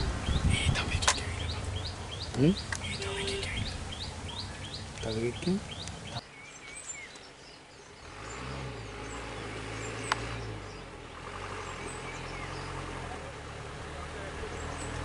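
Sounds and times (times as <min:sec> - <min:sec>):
truck engine idling: 0:00.0 - 0:06.2
faint birds chirping: 0:00.0 - 0:15.0.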